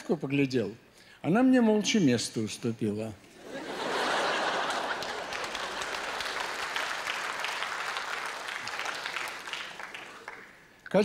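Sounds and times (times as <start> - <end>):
audience applauding: 3.7 - 10.8.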